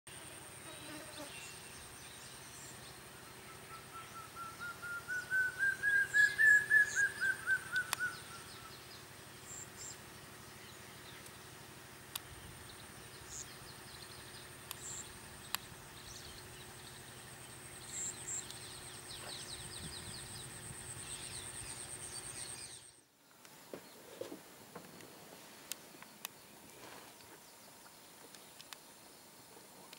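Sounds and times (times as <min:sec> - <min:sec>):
birds calling: 0:01.2 - 0:25.1.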